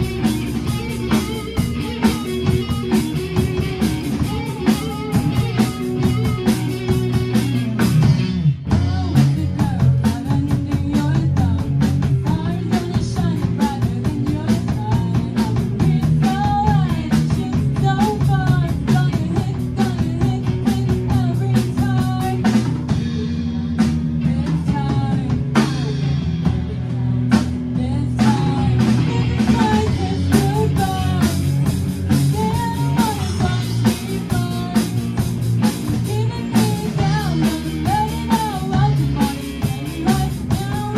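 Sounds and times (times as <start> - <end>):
drum kit beat: 0.0 - 40.9
rock band playing: 0.0 - 40.9
girl singing: 8.7 - 22.6, 24.2 - 40.9.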